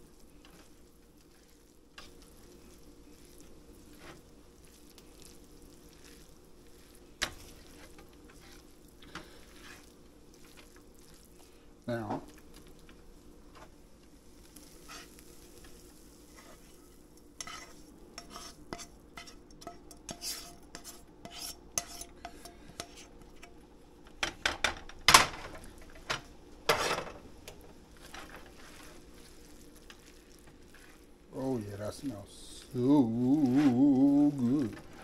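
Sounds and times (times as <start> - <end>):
faint sizzle: 0.0 - 35.0
spoon scraping frying pan: 0.4 - 10.8, 14.5 - 23.6, 26.7 - 27.2.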